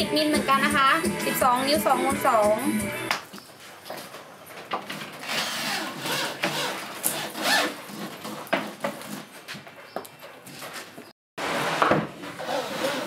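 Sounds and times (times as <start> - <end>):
tool rasping and scraping wood: 5.2 - 9.5, 11.4 - 13.0.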